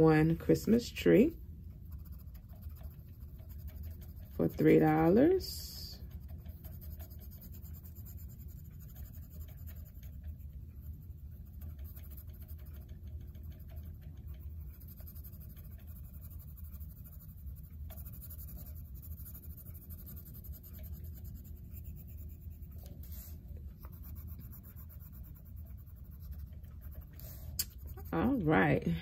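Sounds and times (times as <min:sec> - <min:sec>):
pencil scratching on paper: 0:00.0 - 0:29.0.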